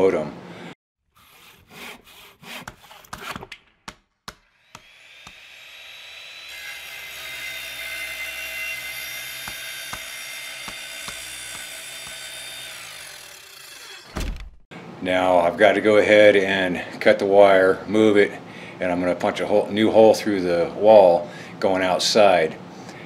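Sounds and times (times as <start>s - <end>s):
electric drill spinning: 4.4s - 7.4s, 8.1s - 14.2s.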